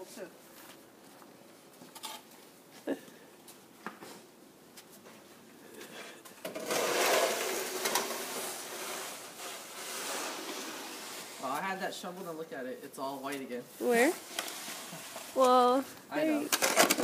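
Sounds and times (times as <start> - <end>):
snow shovel scraping concrete: 6.4 - 11.8, 13.8 - 15.5.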